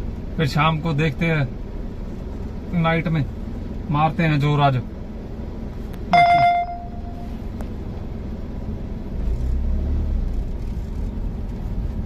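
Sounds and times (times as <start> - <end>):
car engine rumble: 0.0 - 12.0
road noise: 0.0 - 12.0
bright ringing tone: 6.1 - 7.4.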